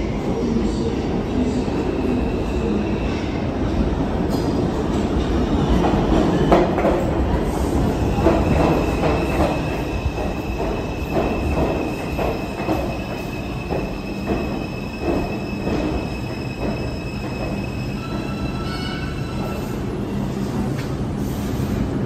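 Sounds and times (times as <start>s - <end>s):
subway train rumbling: 0.0s - 22.0s
high-pitched brake squeal: 15.4s - 19.8s.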